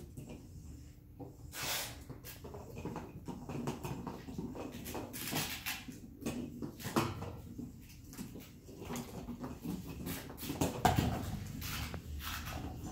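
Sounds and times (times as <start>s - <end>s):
toy rolling on hardwood floor: 0.0s - 12.9s.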